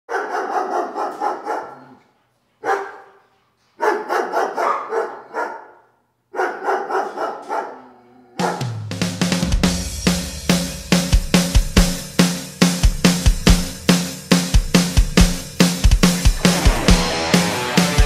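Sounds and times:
dog barking: 0.1s - 8.8s
drum-heavy music: 8.4s - 18.0s.

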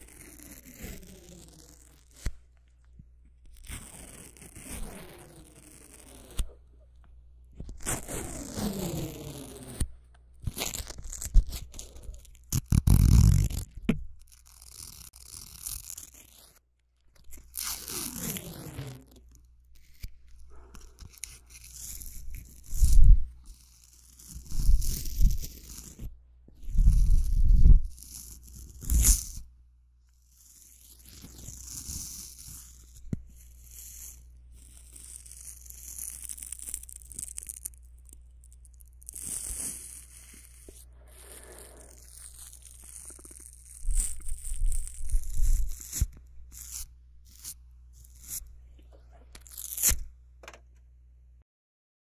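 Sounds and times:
scratchy handling on microphone: 7.5s - 16.6s, 17.2s - 29.5s, 38.5s - 50.7s.

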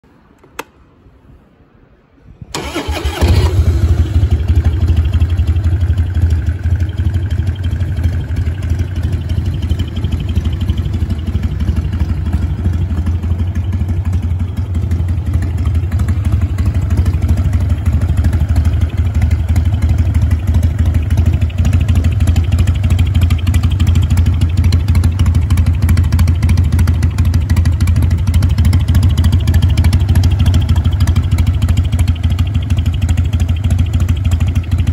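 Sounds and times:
click: 0.3s - 0.8s
motorcycle engine starting and idling: 2.5s - 34.9s.

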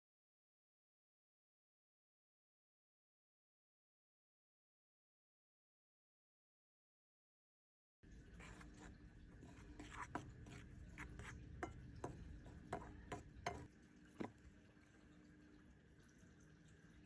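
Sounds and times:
spoon scraping flour: 8.1s - 14.4s
spoon clinking against bowl: 9.5s - 13.7s.

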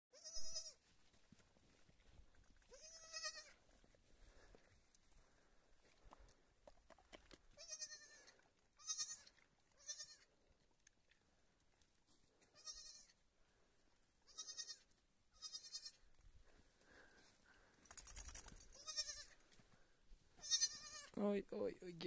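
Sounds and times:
lamb bleating: 0.1s - 0.8s, 2.7s - 3.6s, 7.6s - 10.3s, 12.5s - 13.2s, 14.3s - 16.0s, 18.8s - 19.4s, 20.4s - 21.2s.

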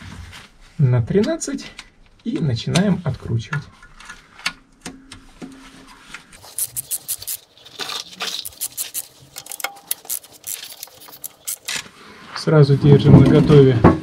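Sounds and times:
ratchet clicking: 6.4s - 11.8s.

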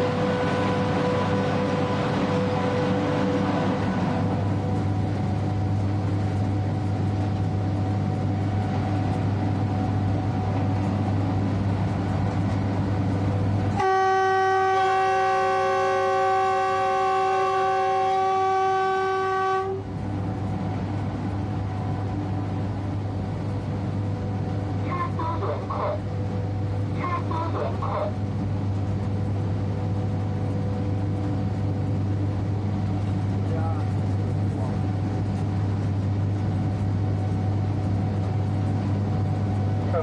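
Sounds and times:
electric locomotive humming: 0.0s - 40.0s
locomotive horn chord: 13.8s - 19.9s.

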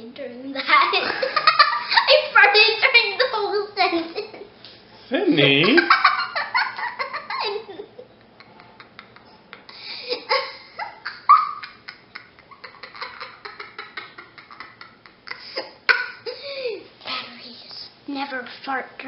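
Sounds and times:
girl laughing hard: 1.0s - 2.2s, 5.6s - 16.9s.

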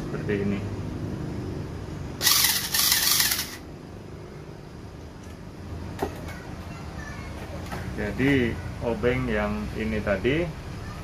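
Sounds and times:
cordless screwdriver whirring: 2.2s - 3.6s.

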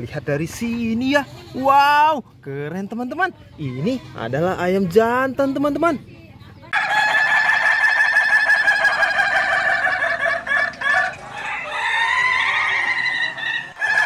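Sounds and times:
rooster crowing: 6.7s - 14.0s.

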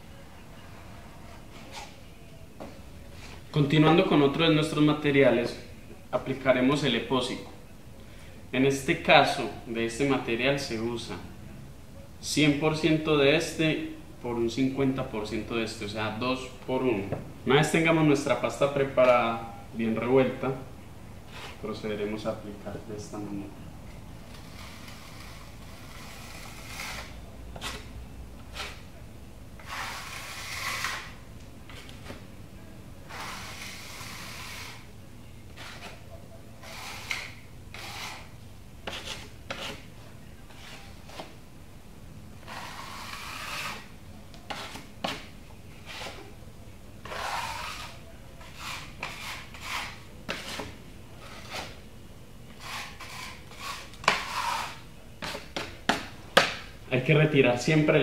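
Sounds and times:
putty knife scraping paste: 21.3s - 21.7s, 24.3s - 28.9s, 29.6s - 32.2s, 33.1s - 34.9s, 35.5s - 39.9s, 40.5s - 41.4s, 42.4s - 46.3s, 47.0s - 51.8s, 52.5s - 56.6s.

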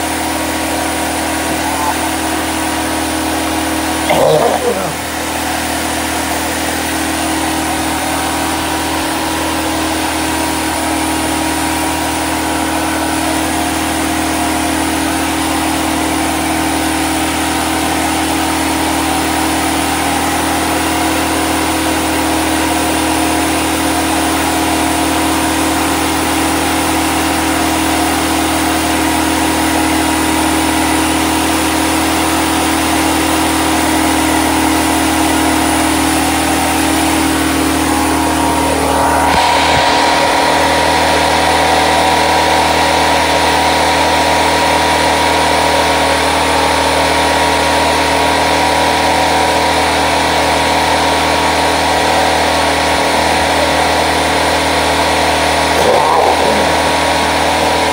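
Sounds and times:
generator engine humming: 0.0s - 6.6s, 55.7s - 57.9s.

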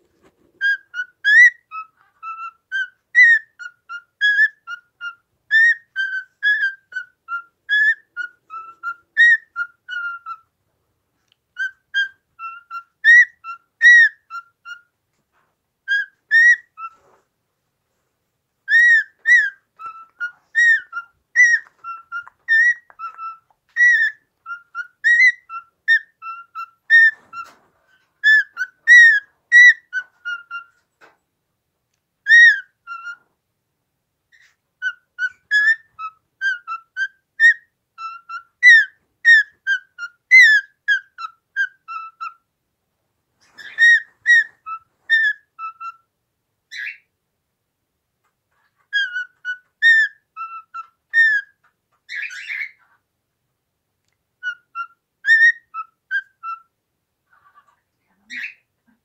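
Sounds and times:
cockatiel whistling: 0.6s - 10.4s, 11.6s - 14.9s, 15.9s - 17.2s, 18.7s - 30.8s, 32.2s - 33.2s, 34.3s - 42.4s, 43.4s - 46.1s, 46.7s - 47.1s, 48.9s - 52.8s, 54.4s - 56.7s.

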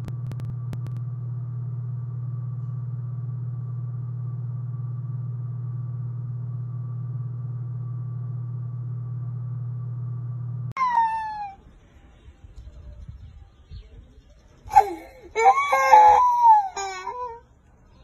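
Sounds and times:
steady low hum: 0.0s - 18.0s
faint high tone: 10.8s - 11.7s.

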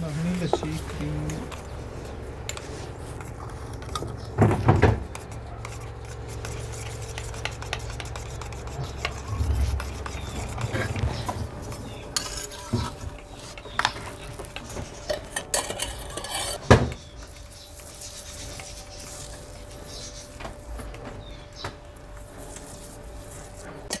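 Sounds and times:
steel utensils clinking and scraping: 11.8s - 13.7s, 15.1s - 16.7s.

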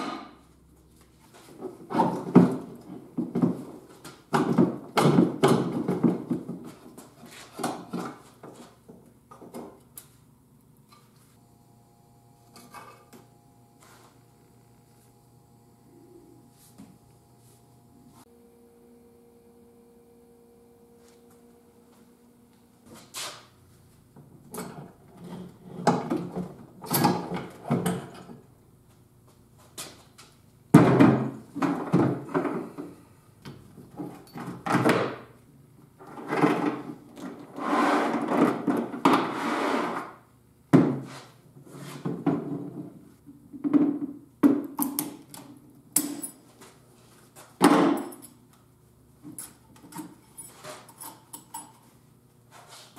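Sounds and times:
faint steady hum: 0.0s - 34.6s.

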